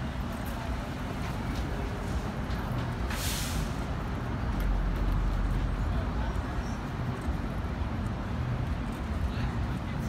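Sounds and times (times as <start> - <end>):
subway train low rumble: 0.0 - 10.0
short hiss: 3.1 - 3.8.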